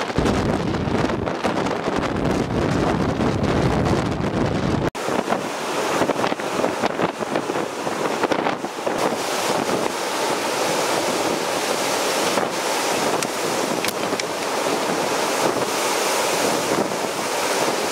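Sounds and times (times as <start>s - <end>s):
strong wind gusts: 0.0s - 17.9s
wind buffeting microphone: 0.0s - 17.9s
river waves breaking: 4.9s - 17.9s.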